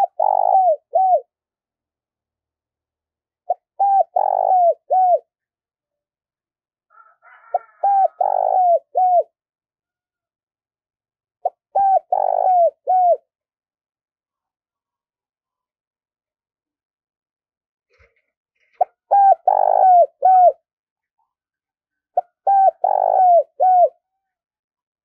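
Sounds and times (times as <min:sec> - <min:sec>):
dove cooing: 0:00.0 - 0:01.3, 0:03.5 - 0:05.3, 0:07.3 - 0:09.4, 0:11.4 - 0:13.3, 0:18.8 - 0:20.6, 0:22.2 - 0:24.0.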